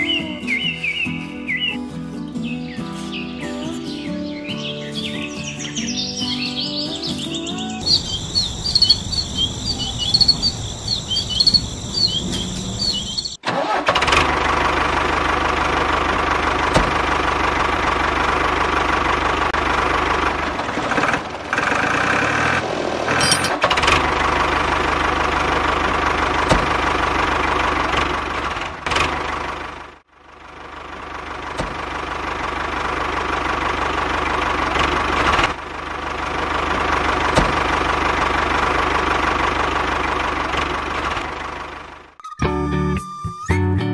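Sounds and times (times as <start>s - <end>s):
birds chirping: 0.0s - 13.4s
tractor engine running: 0.0s - 42.3s.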